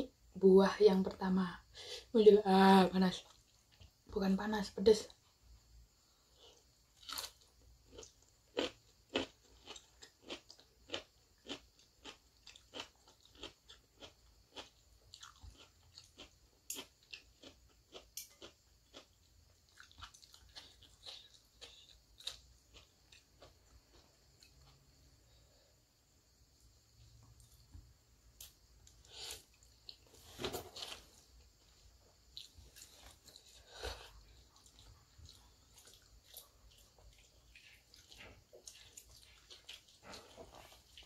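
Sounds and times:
person chewing crunchy food: 6.2 - 25.4, 28.4 - 41.0.

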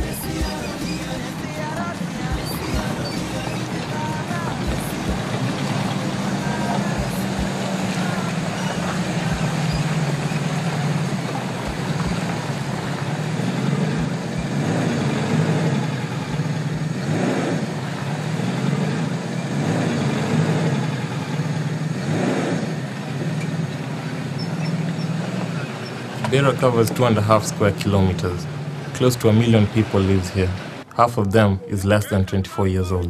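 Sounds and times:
engine running: 0.0 - 32.0
water swooshing in potholes: 0.6 - 30.9.

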